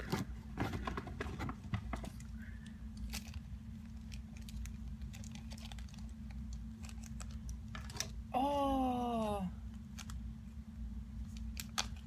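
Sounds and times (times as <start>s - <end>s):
plastic packaging crinkling: 3.0s - 8.1s.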